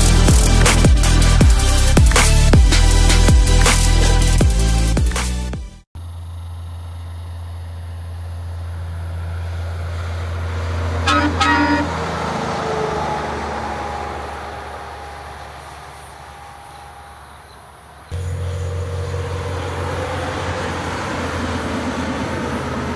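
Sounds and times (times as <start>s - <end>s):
truck engine passing: 0.0s - 5.0s, 6.0s - 22.9s
truck horn blasts: 10.0s - 15.7s.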